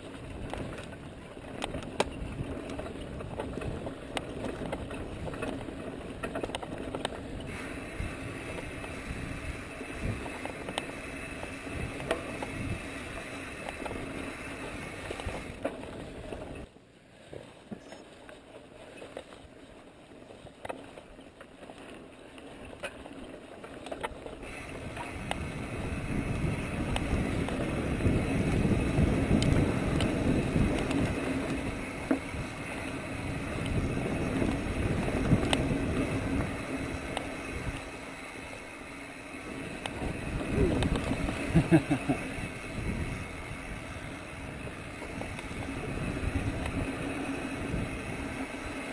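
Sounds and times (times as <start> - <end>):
tyres rumbling on dirt: 0.0 - 16.7, 18.5 - 48.9
bike clicks and rattles: 0.0 - 48.9
wind on microphone: 7.3 - 10.6, 11.4 - 13.3, 24.5 - 37.9, 39.7 - 48.9.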